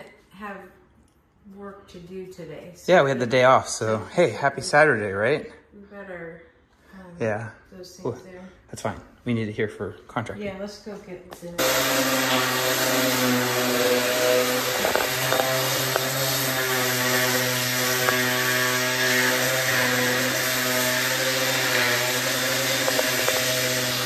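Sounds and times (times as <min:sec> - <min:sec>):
orbital sander sanding wood: 0:11.6 - 0:24.0.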